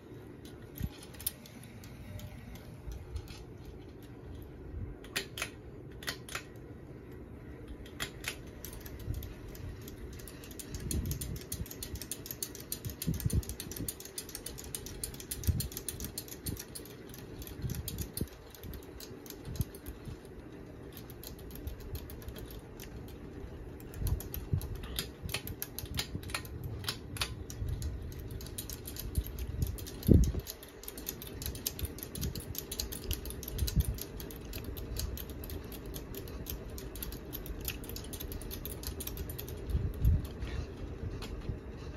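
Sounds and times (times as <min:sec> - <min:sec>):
ceiling fan running: 0:00.0 - 0:41.9
fast clicking rattle: 0:07.7 - 0:40.5.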